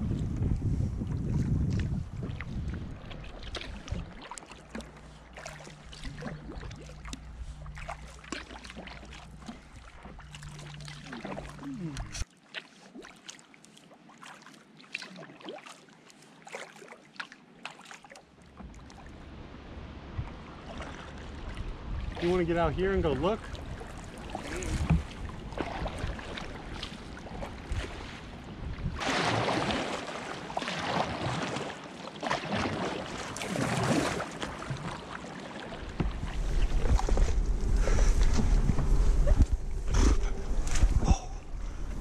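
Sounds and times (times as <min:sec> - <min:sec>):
low steady rumble: 0:00.0 - 0:12.2, 0:18.6 - 0:27.6, 0:35.8 - 0:42.0
paddle splashing and dripping: 0:01.0 - 0:42.0.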